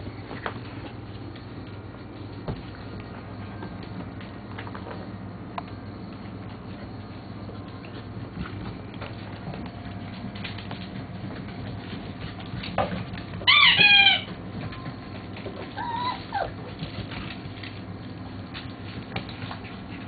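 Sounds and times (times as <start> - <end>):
small paws ticking: 0.0 - 20.0
puppy squealing: 13.4 - 14.3, 15.8 - 16.6
puppy yelping: 13.4 - 14.3, 15.7 - 16.7.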